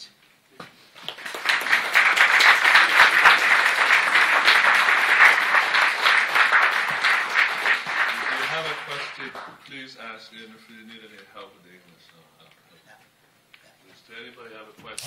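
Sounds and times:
audience applauding: 0:01.0 - 0:09.6.

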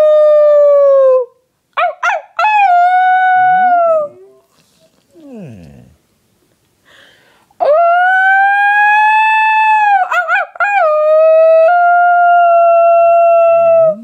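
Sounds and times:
person imitating dog howl: 0:02.4 - 0:04.2, 0:07.6 - 0:14.0.

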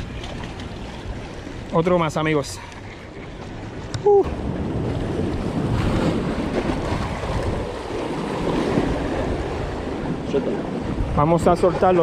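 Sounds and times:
surf washing against rocks: 0:00.0 - 0:12.0
wind noise on microphone: 0:03.8 - 0:12.0.

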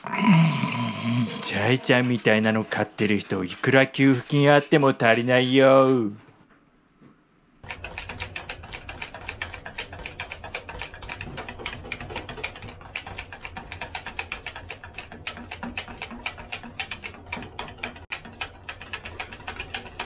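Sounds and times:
whisk clicking against bowl: 0:07.6 - 0:20.0.

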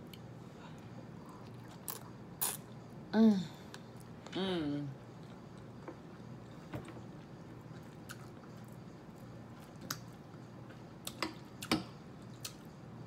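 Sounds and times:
person chewing: 0:07.7 - 0:08.8.

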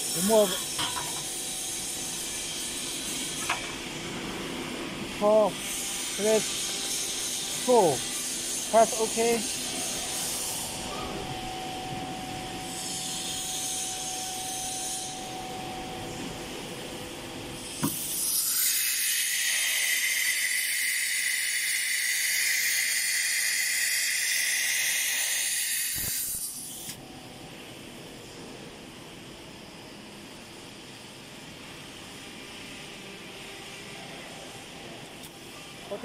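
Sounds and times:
machine whine: 0:00.0 - 0:27.5
compressed air hiss: 0:17.7 - 0:27.0.

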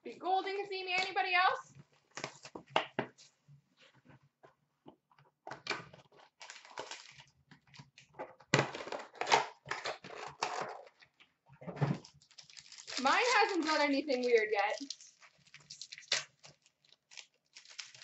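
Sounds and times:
packaging crinkling and tearing: 0:05.8 - 0:11.2, 0:11.9 - 0:18.0.

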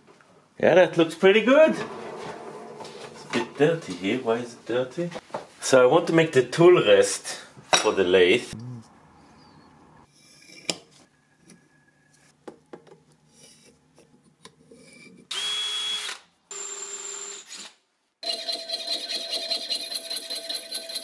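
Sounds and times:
electric drill boring into metal: 0:15.3 - 0:17.7.

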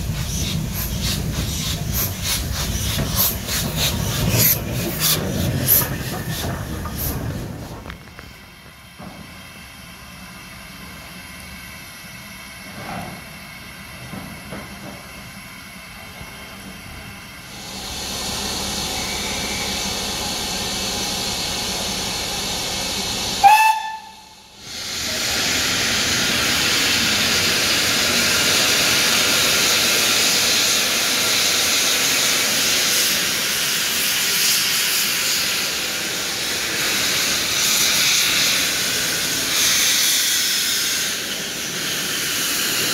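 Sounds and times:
steam locomotive hissing: 0:00.0 - 0:42.9
steam whistle toot: 0:23.4 - 0:24.5.

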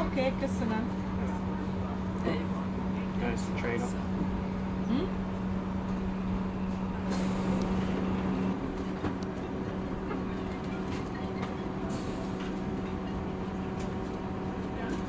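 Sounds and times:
steady hum: 0:00.0 - 0:10.0
train rolling rumble: 0:00.0 - 0:15.0
wheels clicking on track: 0:07.2 - 0:15.0.

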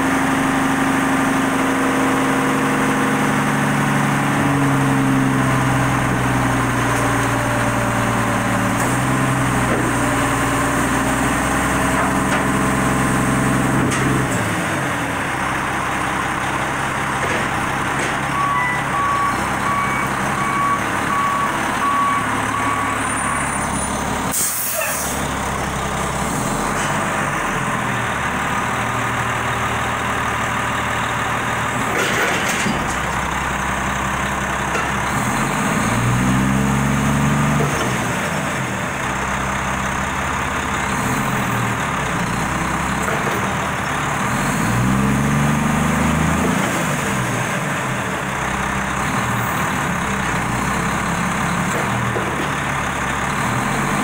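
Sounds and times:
diesel truck engine running: 0:00.0 - 0:54.0
air brake hiss: 0:24.3 - 0:25.2.

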